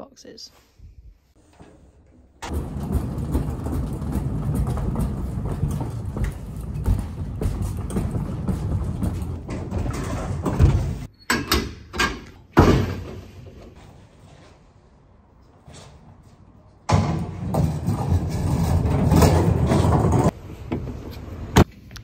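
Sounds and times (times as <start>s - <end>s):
trolley wheels rumbling on concrete: 2.4s - 11.1s, 15.6s - 21.5s.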